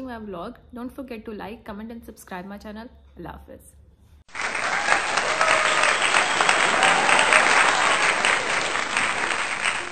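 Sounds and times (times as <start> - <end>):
crowd applause: 4.3 - 9.9.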